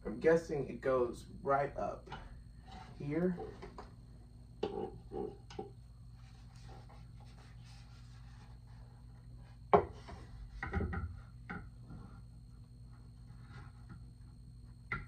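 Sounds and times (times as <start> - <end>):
soft rubbing: 6.0 - 10.5.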